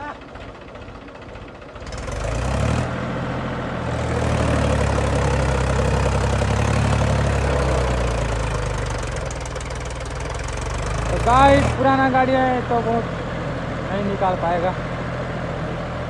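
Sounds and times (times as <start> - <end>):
tractor diesel engine revving: 0.0 - 16.0.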